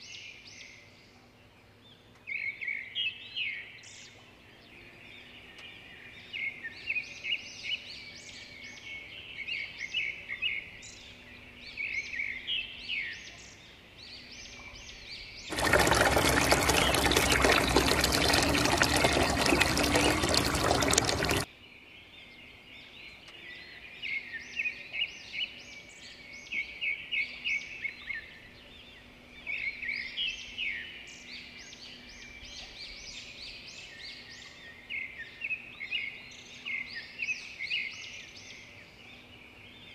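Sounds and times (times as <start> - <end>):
water pouring from pipe into basin: 15.5 - 21.5.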